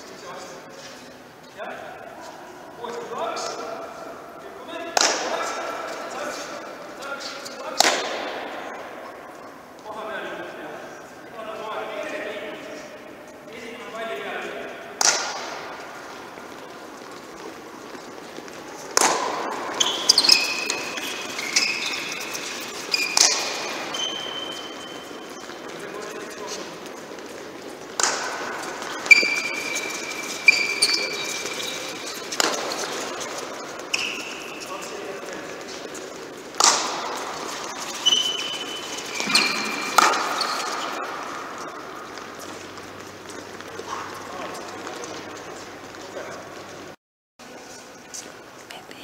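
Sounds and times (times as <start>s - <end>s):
sharp knocks echoing in hall: 2.8s - 10.2s, 11.7s - 17.6s, 18.7s - 27.0s, 27.8s - 35.6s, 36.2s - 45.0s
loud sharp smacks: 15.0s - 15.6s
sneakers squeaking on court: 15.0s - 47.0s.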